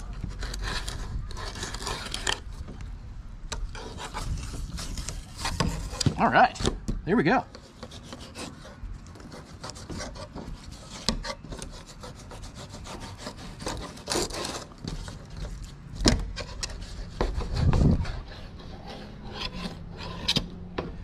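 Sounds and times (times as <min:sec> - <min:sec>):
knife scraping on plastic cutting board: 0:03.6 - 0:06.2, 0:07.5 - 0:15.7, 0:16.3 - 0:20.5.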